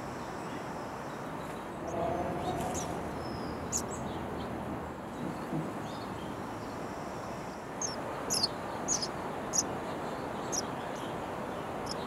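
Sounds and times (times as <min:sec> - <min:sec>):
outdoor background hiss: 0:00.0 - 0:12.0
nestling birds begging chirps: 0:00.5 - 0:04.6, 0:07.8 - 0:12.0.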